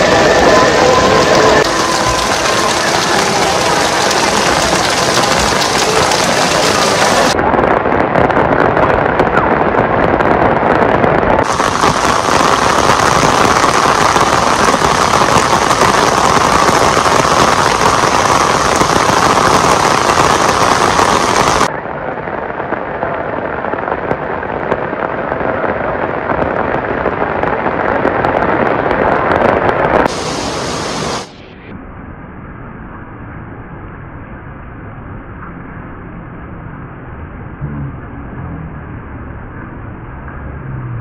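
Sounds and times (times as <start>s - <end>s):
heavy rain on pavement: 0.0s - 31.6s.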